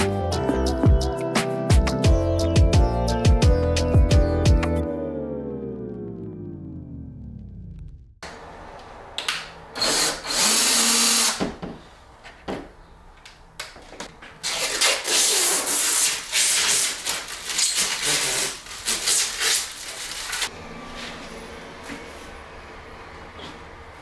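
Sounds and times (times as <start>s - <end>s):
cordless drill driving: 9.8s - 11.5s
plastic sheet crinkling: 14.4s - 20.5s.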